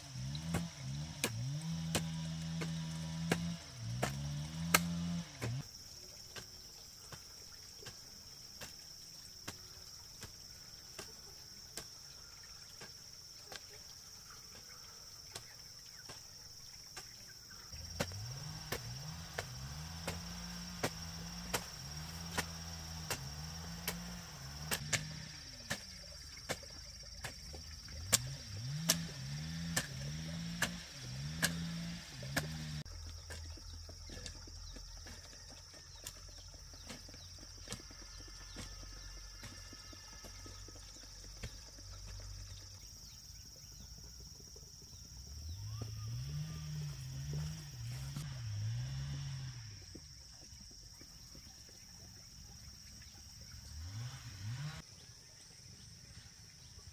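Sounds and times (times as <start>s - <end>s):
high insect buzz: 0.0s - 51.0s
hoe chopping into dry soil: 0.1s - 5.7s, 6.3s - 12.1s, 14.6s - 42.2s.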